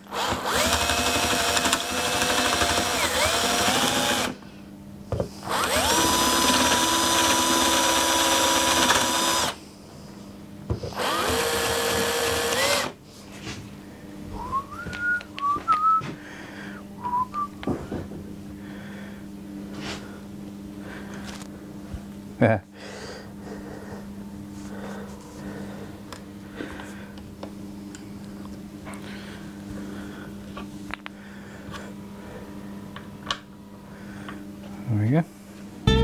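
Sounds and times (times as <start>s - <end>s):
cordless drill motor whine: 0.0s - 4.4s, 5.4s - 9.6s, 10.9s - 13.0s
hand drill scraping wood: 0.0s - 4.4s, 5.4s - 9.6s, 10.9s - 13.0s.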